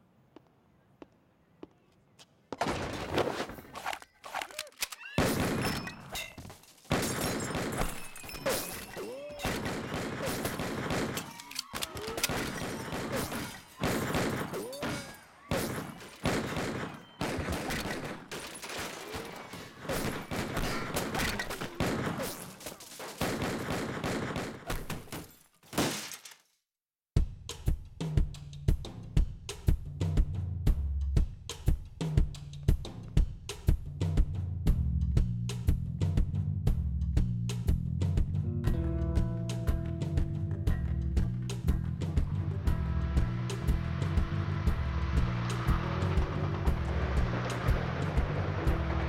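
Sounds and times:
rapid gunfire: 9.5 - 11.3, 12.3 - 14.6, 15.5 - 18.3, 19.8 - 22.3, 23.0 - 24.8.

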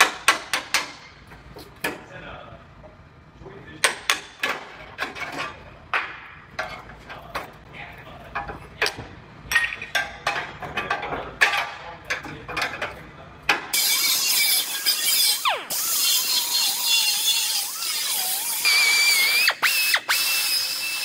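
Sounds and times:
cut-off tool grinding hiss: 13.8 - 21.0.

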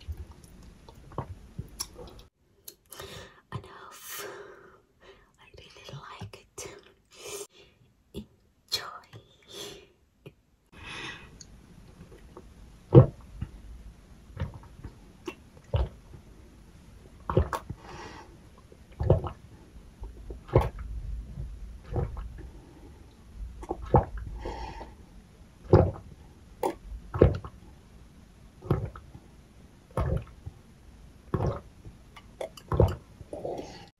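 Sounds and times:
person gulping water: 0.0 - 2.3, 17.3 - 17.9, 18.6 - 22.6, 23.6 - 24.9, 26.6 - 27.5, 28.6 - 29.0, 30.0 - 30.4, 31.3 - 33.9.

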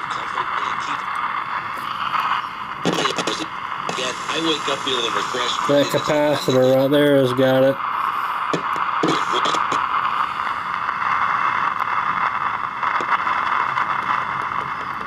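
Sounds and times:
static hiss from speaker: 0.0 - 15.0.

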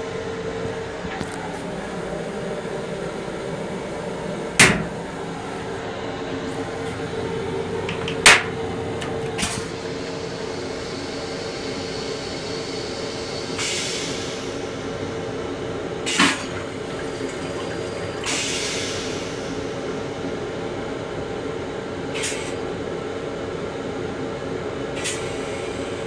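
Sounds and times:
steady hum: 0.0 - 18.4
toilet flush water hissing: 1.6 - 20.4, 25.0 - 26.0.

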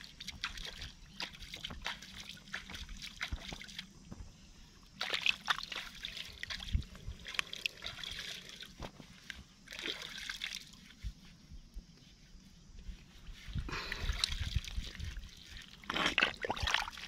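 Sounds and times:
mud squelching: 0.0 - 3.9, 4.9 - 11.0, 13.0 - 17.0
muddy water sloshing and trickling: 0.0 - 11.3, 12.4 - 17.0.

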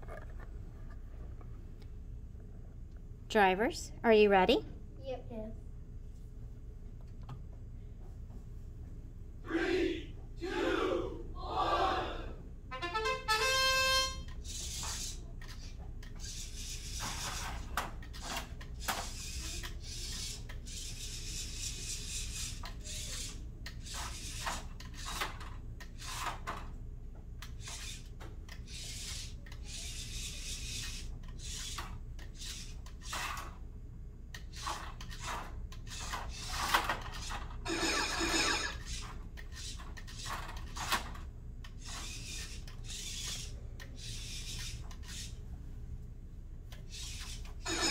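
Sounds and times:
toy robot clicking and clattering: 14.3 - 26.7, 27.4 - 33.6, 34.3 - 45.4, 46.7 - 47.9.

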